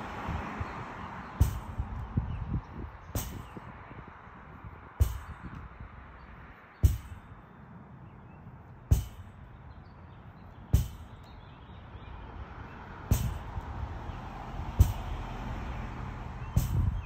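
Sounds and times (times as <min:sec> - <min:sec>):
ball hitting rebounder net: 0:10.7 - 0:11.1.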